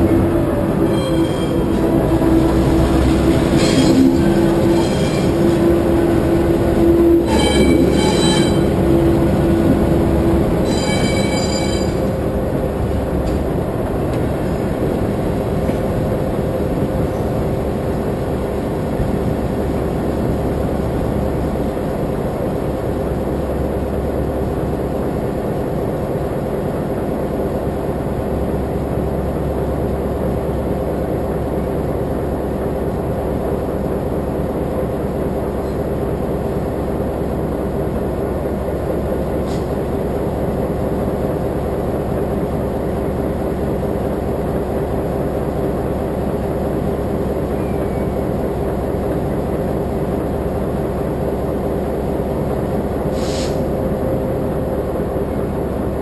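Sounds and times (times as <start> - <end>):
held tone: 0.0 - 12.3
freight train wheels rumbling: 0.0 - 56.0
high-pitched wheel squeals: 0.1 - 12.3.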